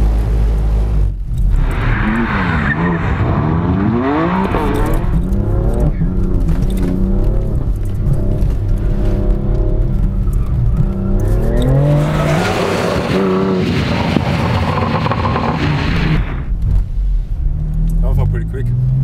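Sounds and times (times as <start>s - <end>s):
car engine revving: 0.0s - 16.7s
tyres skidding: 1.2s - 16.6s.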